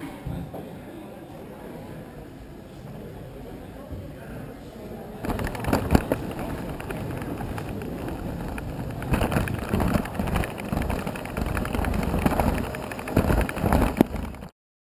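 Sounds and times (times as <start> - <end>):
roller coaster car rattling on track: 5.2 - 14.5.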